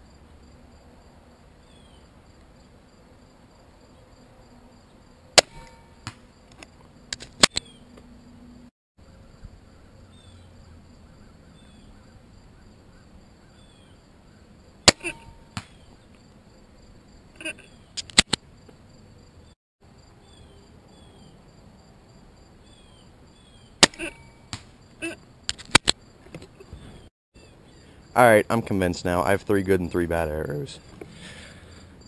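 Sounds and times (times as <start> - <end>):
crossbow string crack and twang: 5.4 - 7.7, 14.9 - 15.8, 23.8 - 24.8.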